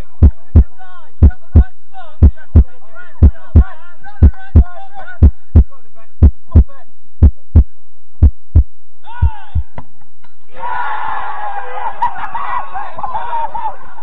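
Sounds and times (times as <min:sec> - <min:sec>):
heartbeat thumps: 0:00.0 - 0:10.2.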